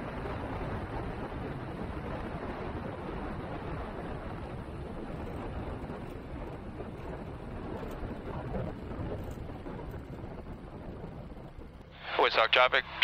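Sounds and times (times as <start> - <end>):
light aircraft engine: 0.0 - 13.0.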